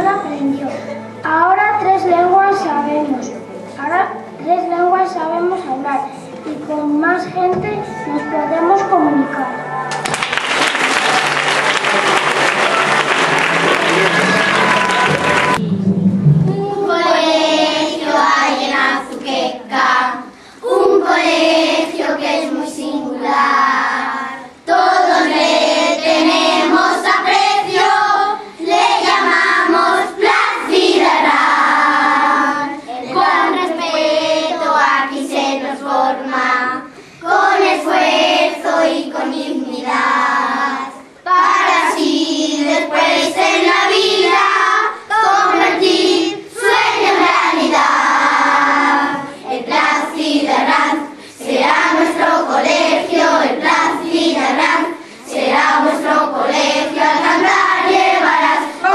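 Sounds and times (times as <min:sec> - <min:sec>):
children's choir singing: 0:07.4 - 0:58.9.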